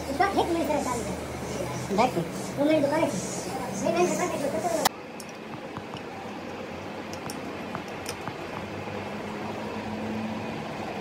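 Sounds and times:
steady mechanical hum: 0.0 - 11.0
wrench clicking on bolts: 7.1 - 8.4.

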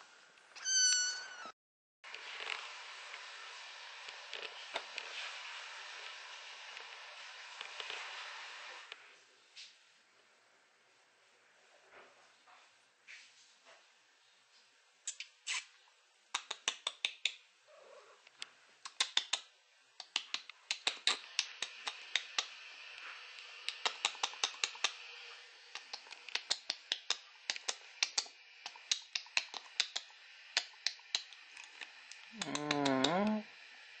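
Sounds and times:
kitten licking and chewing: 25.7 - 32.8.

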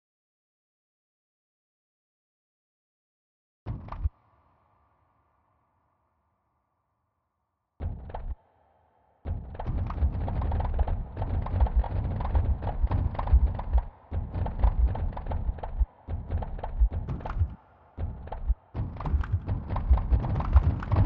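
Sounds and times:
rattle of low thumps and clicks: 7.8 - 8.4, 9.3 - 21.0.

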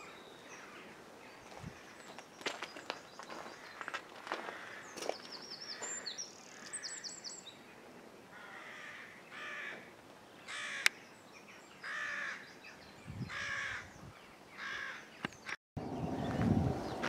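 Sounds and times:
crow cawing: 3.6 - 5.0, 5.8 - 7.1, 8.3 - 9.9, 10.5 - 10.9, 11.8 - 12.4, 13.3 - 13.9, 14.6 - 15.1.

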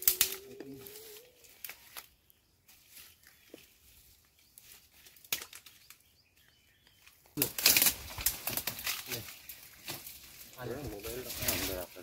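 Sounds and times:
rustling in brush: 0.7 - 5.3, 7.7 - 12.0.

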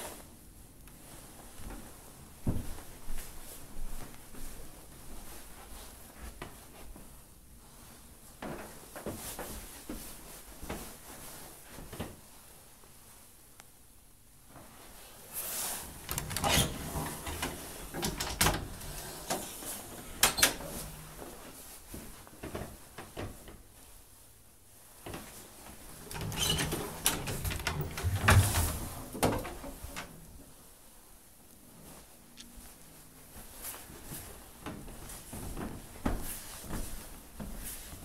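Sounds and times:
cabinet doors opening and shutting: 15.5 - 21.3, 25.9 - 30.2.

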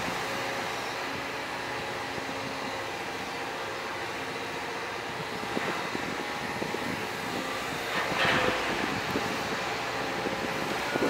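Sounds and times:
excavator engine and hydraulics: 0.0 - 11.0
small metal knocks and clanks: 7.8 - 9.3.

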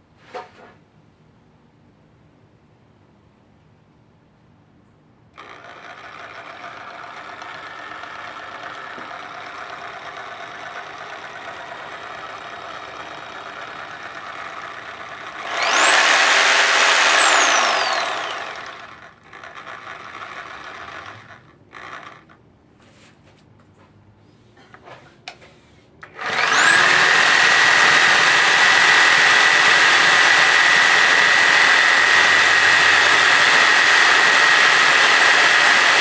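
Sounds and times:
reciprocating saw running: 5.4 - 22.4, 26.0 - 36.0.

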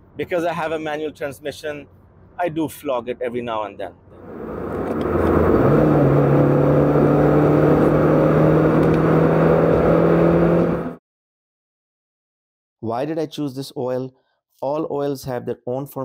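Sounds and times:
car engine revving high: 4.2 - 11.0.

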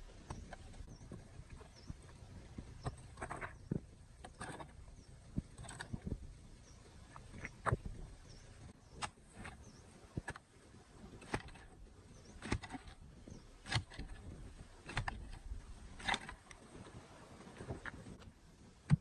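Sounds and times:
garden tool striking dry soil: 11.2 - 11.7, 12.3 - 13.0, 14.8 - 15.4.

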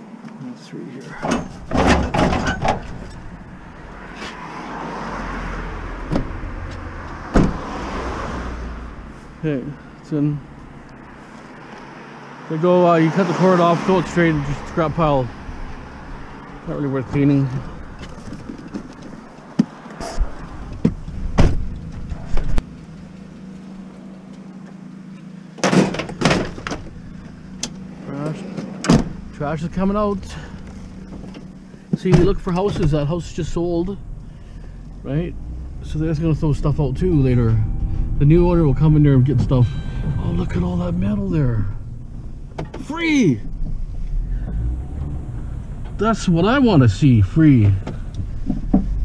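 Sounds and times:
van door clunks: 1.1 - 3.5, 6.0 - 6.4, 7.3 - 7.7, 20.2 - 22.6, 25.6 - 27.0, 28.6 - 29.3, 41.8 - 43.8
sheet metal panels clattering: 1.2 - 3.2
car passing: 2.8 - 25.6, 26.5 - 49.0
car hatch slamming shut: 7.3 - 7.7, 21.3 - 21.7, 25.6 - 26.9, 28.8 - 29.2
steady low hum: 20.3 - 49.0.

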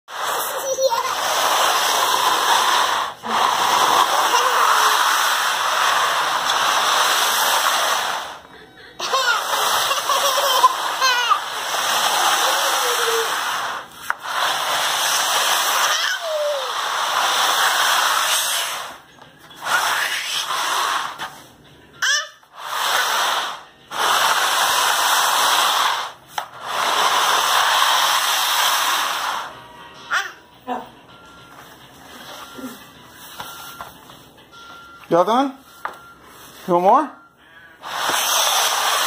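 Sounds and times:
plastic basket scraping on tile floor: 0.1 - 21.4, 22.6 - 29.6, 37.8 - 39.0.

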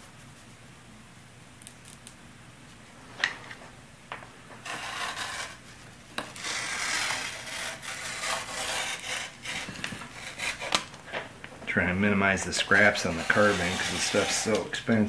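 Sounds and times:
rotary cutter rasping through cloth: 4.6 - 5.6, 6.4 - 10.8, 12.4 - 14.7.

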